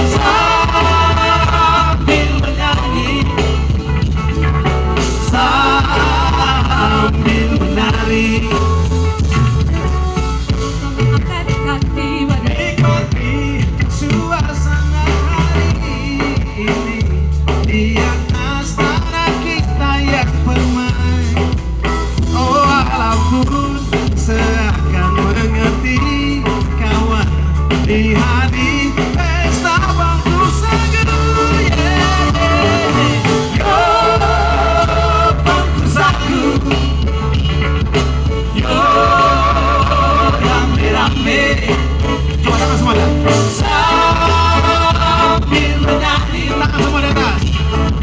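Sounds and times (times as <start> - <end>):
singers on microphones: 0.0 - 4.0, 4.9 - 9.0, 10.5 - 48.0
electric guitar: 0.0 - 48.0
heavy bass line: 0.0 - 48.0.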